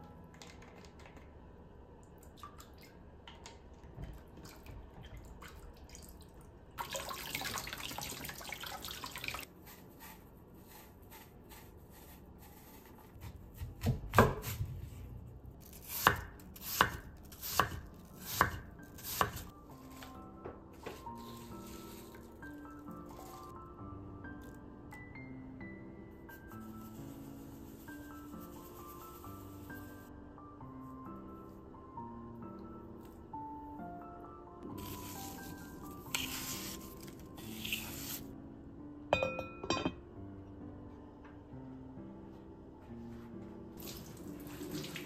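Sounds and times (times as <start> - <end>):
tap water running: 6.8 - 9.5, 43.8 - 45.0.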